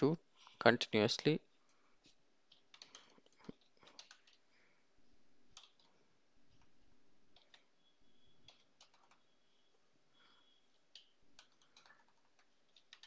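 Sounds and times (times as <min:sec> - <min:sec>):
keyboard and mouse clicks: 0:02.4 - 0:04.5, 0:05.5 - 0:07.7, 0:08.4 - 0:09.3, 0:10.7 - 0:13.0.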